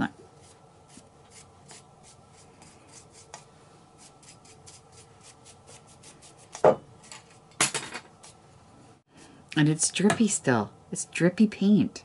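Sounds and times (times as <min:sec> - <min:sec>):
paintbrush scratching on ceramic: 0:00.4 - 0:03.4, 0:04.0 - 0:06.6.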